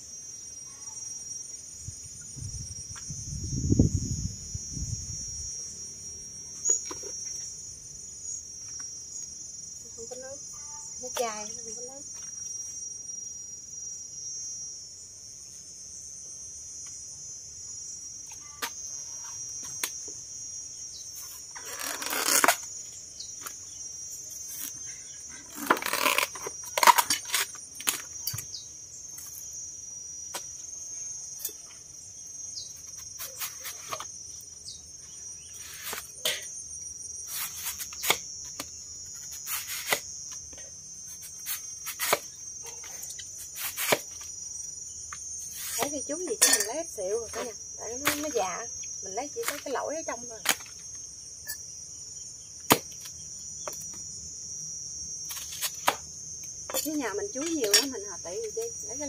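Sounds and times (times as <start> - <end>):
insects chirring: 0.0 - 59.0
rough tearing rustles: 21.6 - 22.7.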